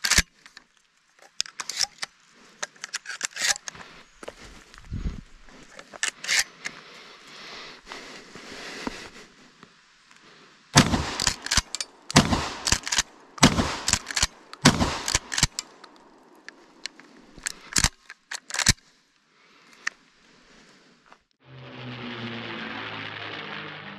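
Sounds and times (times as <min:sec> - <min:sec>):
metallic clicks of slide: 0:00.0 - 0:00.6, 0:01.2 - 0:03.8, 0:05.8 - 0:06.8, 0:11.2 - 0:13.1, 0:13.8 - 0:18.9
shotgun shots: 0:10.8 - 0:15.6.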